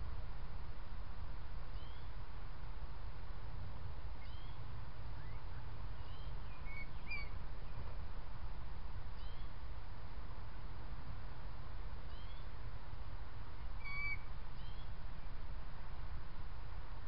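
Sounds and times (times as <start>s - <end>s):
birds chirping: 1.7s - 2.1s, 4.2s - 8.0s, 9.2s - 9.6s, 13.8s - 15.0s.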